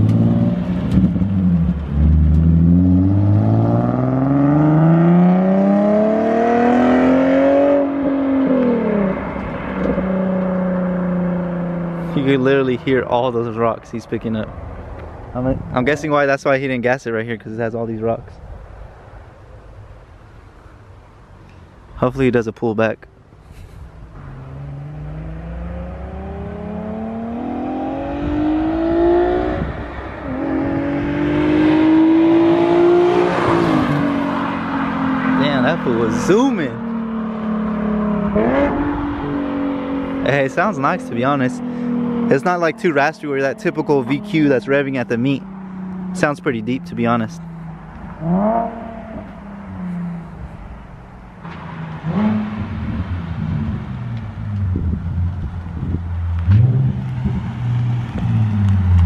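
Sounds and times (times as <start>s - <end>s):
car engine accelerating hard: 0.0s - 12.4s, 24.2s - 50.3s, 51.5s - 59.0s.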